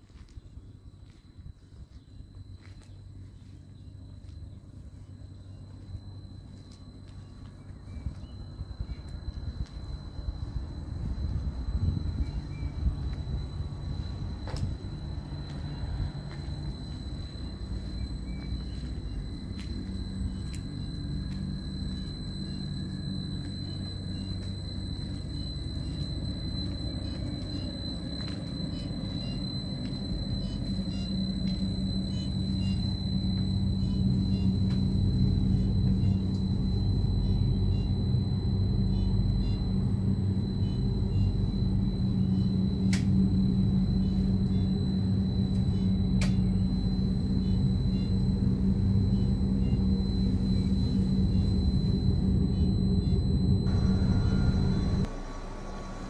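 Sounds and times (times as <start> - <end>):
electric railcar hum and rumble: 0.0 - 56.0
high constant whine: 0.0 - 56.0
sharp clicks: 45.5 - 46.5.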